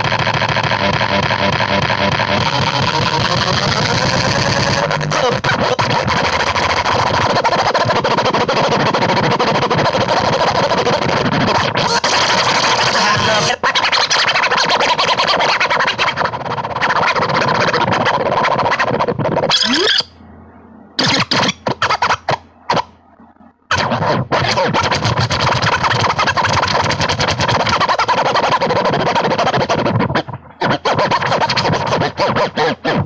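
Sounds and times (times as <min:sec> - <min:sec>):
harsh noisy music: 0:00.0 - 0:20.1
short choppy bursts: 0:00.0 - 0:20.1, 0:23.7 - 0:33.0
steady tone: 0:11.8 - 0:13.8.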